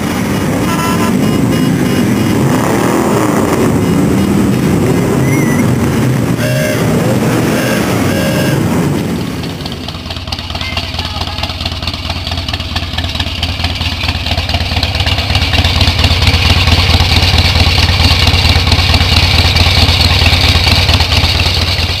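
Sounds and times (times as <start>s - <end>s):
engine running with low pulsing: 0.0s - 22.0s.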